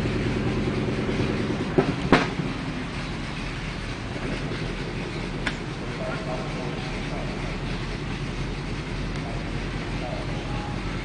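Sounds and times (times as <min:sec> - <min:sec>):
engine running: 0:00.0 - 0:11.0
sharp knocks: 0:01.7 - 0:02.5.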